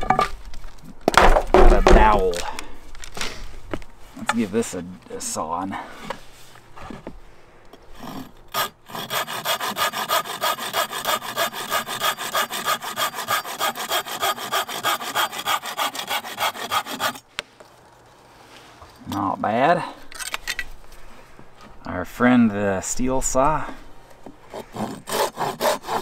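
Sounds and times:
pruning saw cutting wood: 7.9 - 17.3, 24.5 - 26.0.

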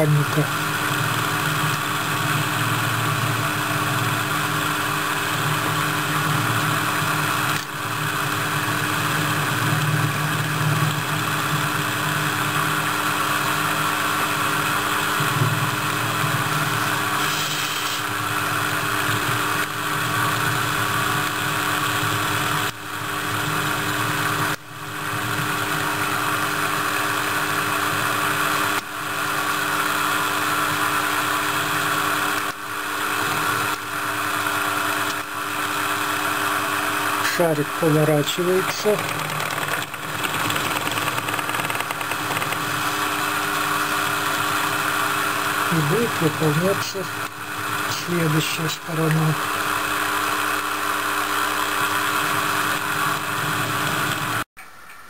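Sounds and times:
milling machine cutting metal: 34.4 - 50.4.

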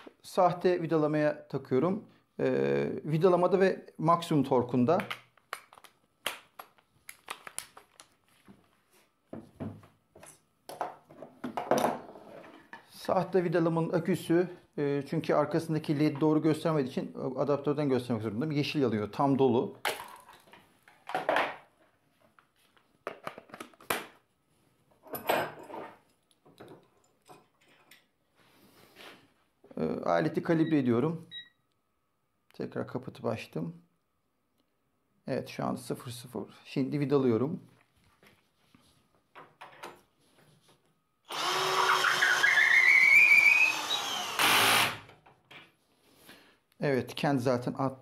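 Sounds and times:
cordless drill motor whining: 41.3 - 45.0
drill clutch rattling: 41.3 - 45.1.

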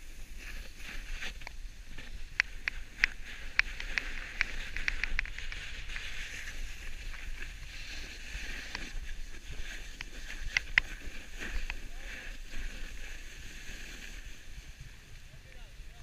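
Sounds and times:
ski edges scraping over snow: 0.0 - 15.0.

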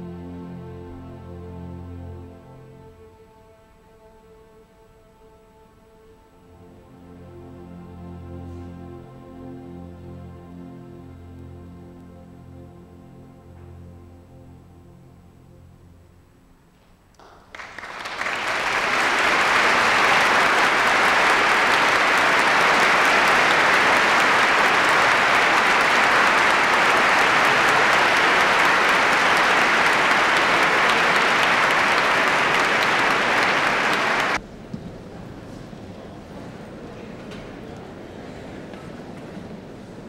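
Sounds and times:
large audience applauding: 17.2 - 34.4.

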